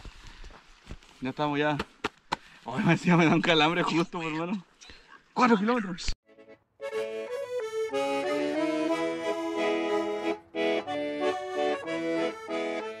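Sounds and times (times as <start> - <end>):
accordion music: 6.2 - 13.0.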